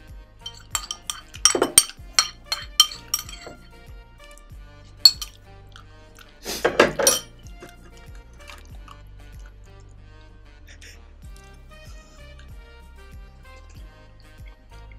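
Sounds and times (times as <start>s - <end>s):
background music: 0.0s - 14.9s
metal spoon clinking glass bowl: 0.4s - 3.6s, 5.0s - 5.4s, 6.6s - 7.4s.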